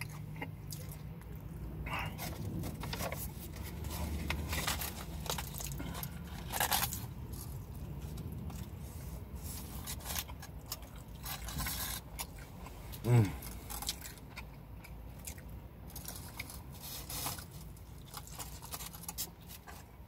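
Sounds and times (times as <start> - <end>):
chewing and biting: 0.0 - 20.0
foil wrapper crinkling: 2.6 - 8.5.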